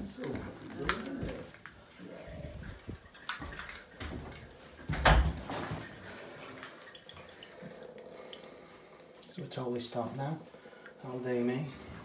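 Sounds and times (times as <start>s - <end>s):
handling and walking noise: 0.0s - 7.9s, 8.5s - 12.0s
water dripping into steel sink: 5.0s - 9.4s.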